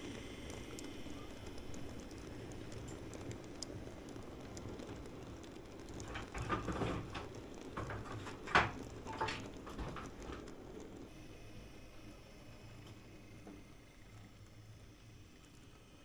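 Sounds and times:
model train wagons rumbling: 0.0 - 11.1
wheels clicking on rails: 0.0 - 11.3.

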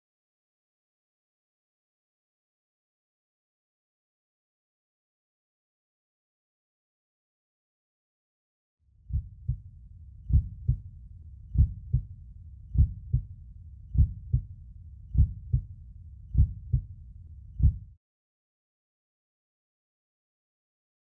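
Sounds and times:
heartbeat thumps: 9.1 - 9.6, 10.3 - 10.8, 11.6 - 12.1, 12.8 - 13.3, 14.0 - 14.5, 15.2 - 15.7, 16.3 - 16.9, 17.6 - 18.0
steady low rumble: 9.1 - 18.0.

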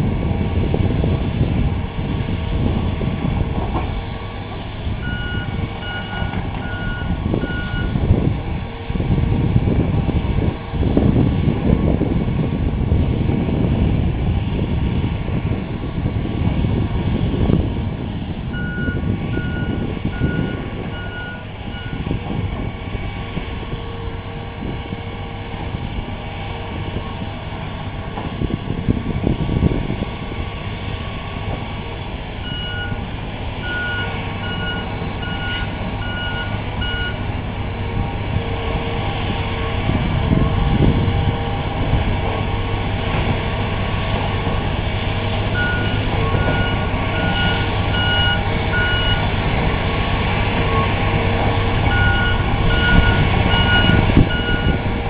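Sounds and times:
excavator diesel engine rumbling: 0.0 - 55.0
back-up alarm beeping: 5.0 - 7.9, 18.6 - 22.0, 32.4 - 33.0, 33.6 - 37.2, 45.6 - 49.2, 51.9 - 54.8.

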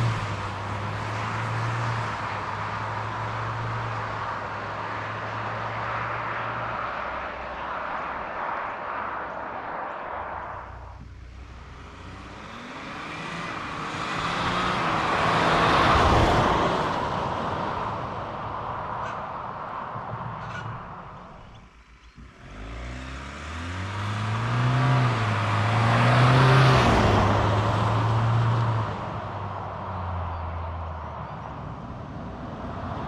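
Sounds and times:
car accelerating at full throttle: 0.0 - 19.0, 22.2 - 33.0
engine upshifting: 20.1 - 30.8.

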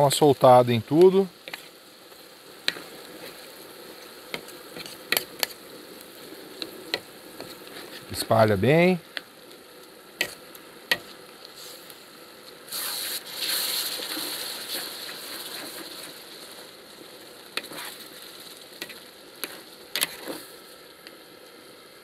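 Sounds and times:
rice sizzling in a pan: 0.0 - 22.0
burst of hissing: 11.5 - 20.8
spatula scraping metal pan: 17.6 - 18.0.

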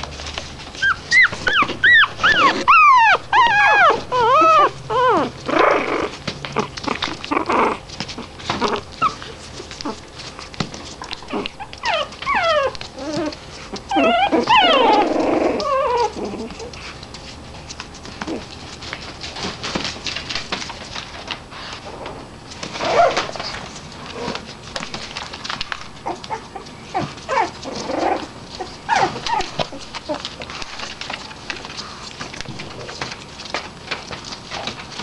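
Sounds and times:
puppies whimpering and yipping: 0.6 - 10.4, 11.0 - 17.1, 22.7 - 23.6, 25.1 - 31.7
newspaper rustling and crackling: 22.4 - 26.4, 27.5 - 35.0.

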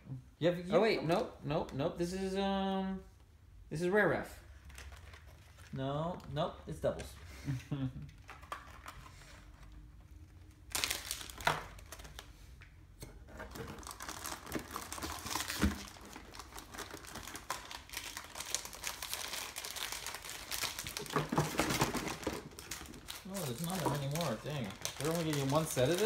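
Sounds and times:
foil packs crinkling: 10.2 - 12.3, 13.5 - 26.0.

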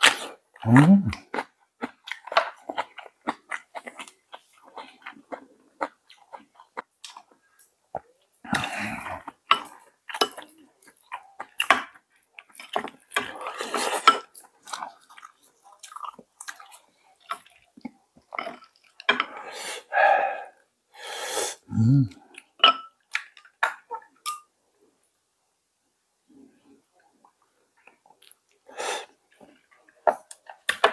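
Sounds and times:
person chewing: 0.0 - 20.6, 21.7 - 24.1
slurping broth: 19.3 - 22.2.

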